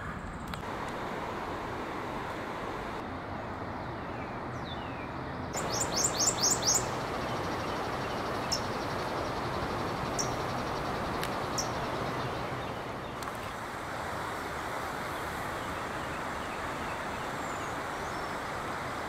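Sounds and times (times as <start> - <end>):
steady rushing hiss: 0.6 - 3.0, 5.6 - 19.0
warbler singing high notes: 5.6 - 13.2.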